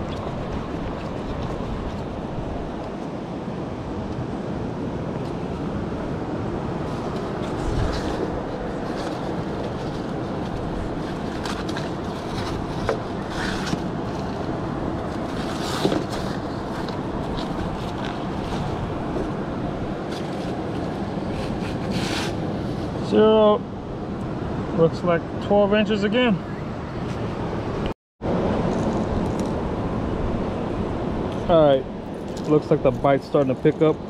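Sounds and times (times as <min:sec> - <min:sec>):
wind on microphone: 0:00.0 - 0:23.0.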